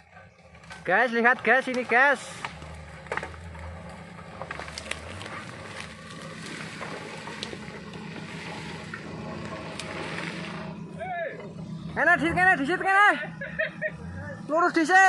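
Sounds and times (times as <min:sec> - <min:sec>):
off-road vehicle engine running: 0:00.0 - 0:15.0
brush scraping against vehicle: 0:00.6 - 0:11.6.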